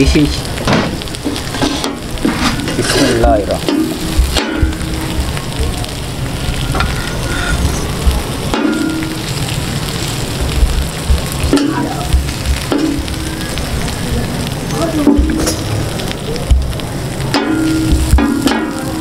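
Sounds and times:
chicken sizzling in oil: 0.0s - 19.0s
metal spatulas scraping and clinking: 1.5s - 3.8s.

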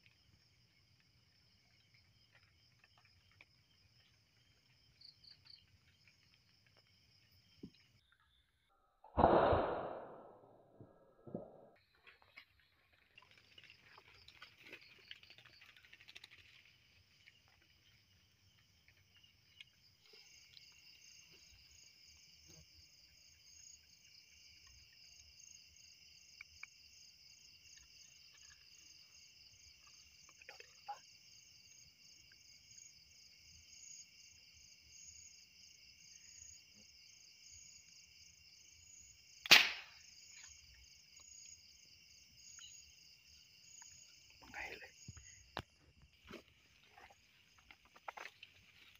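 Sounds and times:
night insect chorus: 0.0s - 8.7s, 11.7s - 48.9s
air gun firing pop: 9.1s - 10.6s, 39.5s - 39.9s.

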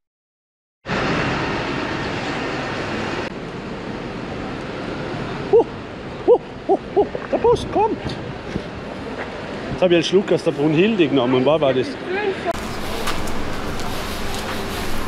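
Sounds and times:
city street traffic: 0.9s - 15.0s.

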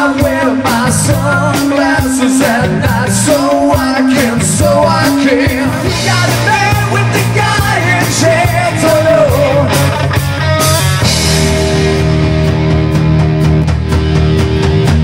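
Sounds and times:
person singing lead vocal: 0.0s - 10.1s
rock band playing: 0.0s - 15.0s.

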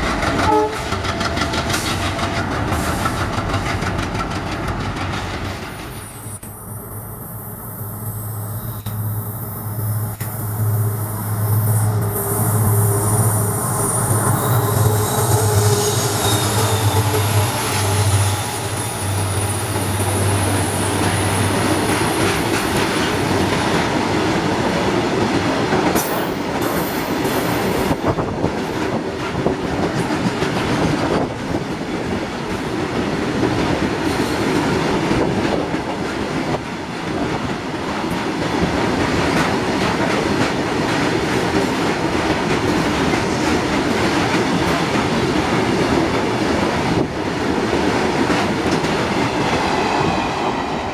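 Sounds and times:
wheels clicking over rail joints: 0.0s - 6.0s
train wheels rumbling on rails: 0.0s - 50.9s
high wheel squeal: 6.1s - 22.4s.

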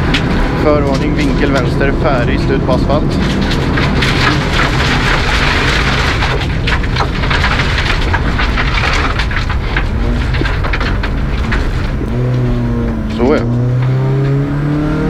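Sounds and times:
car engine running hard: 0.0s - 15.0s
gravel pelting car underbody: 0.0s - 15.0s.

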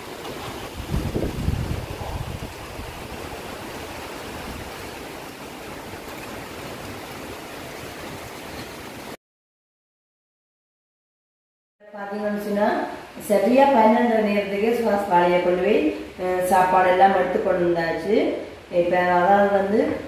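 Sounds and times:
wind buffeting microphone: 0.0s - 9.0s.

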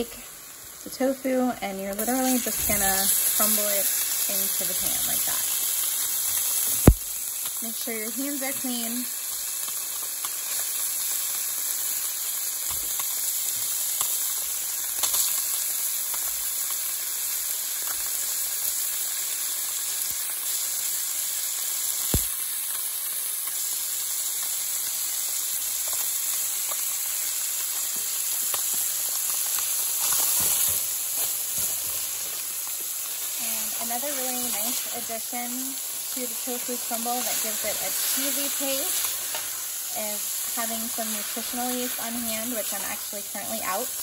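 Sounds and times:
onions sizzling in oil: 0.0s - 44.0s
small oil pops: 6.7s - 7.6s, 22.1s - 22.4s.

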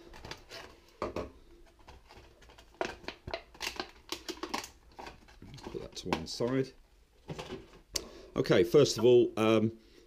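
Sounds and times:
plastic blister pack crackling: 1.8s - 6.7s.

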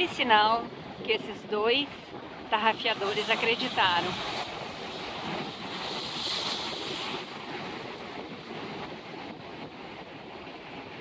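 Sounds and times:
surf washing among rocks: 2.2s - 11.0s
wave breaking over rocks: 2.8s - 11.0s.

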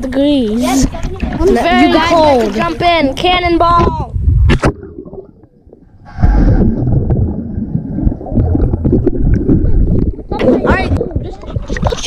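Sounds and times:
underwater rumbling and gurgling: 0.8s - 12.0s.

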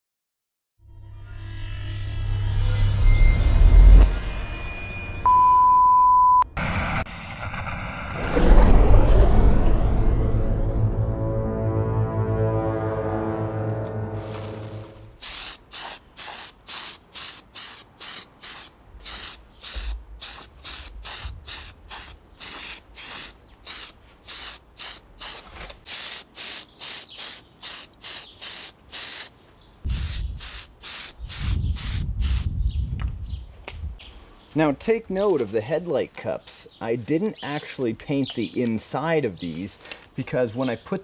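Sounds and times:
low rumble: 6.4s - 11.8s, 19.8s - 22.2s
spray can hissing in puffs: 14.2s - 29.3s, 29.9s - 32.5s.

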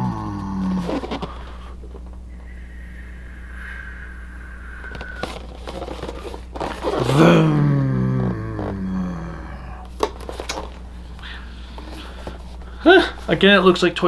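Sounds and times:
man's wordless vocal sound: 7.1s - 9.8s.

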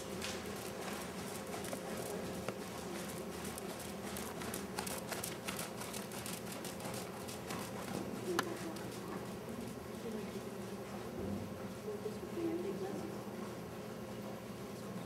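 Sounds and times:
pony hoofbeats on sand: 0.0s - 11.1s
steady low hum: 0.0s - 15.0s.

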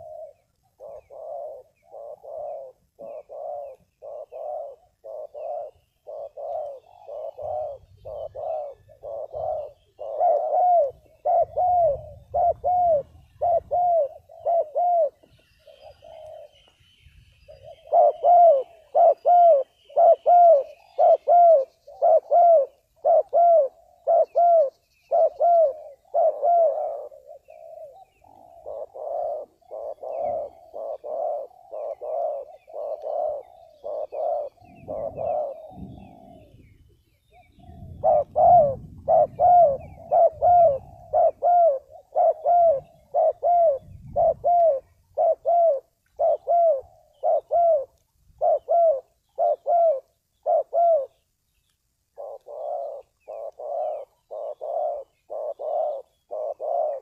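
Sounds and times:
dove cooing: 0.0s - 16.8s, 17.5s - 51.2s, 52.1s - 57.0s.

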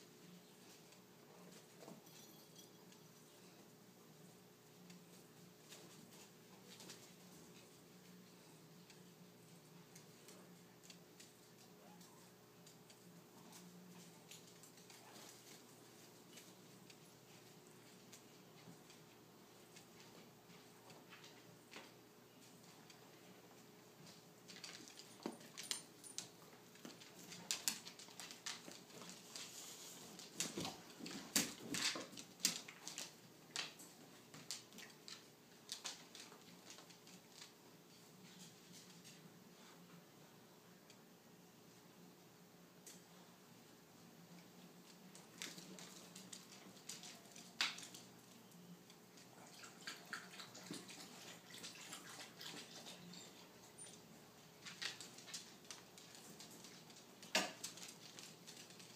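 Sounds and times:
pets scratching and rustling: 0.2s - 39.8s, 44.8s - 48.4s, 49.1s - 58.9s.

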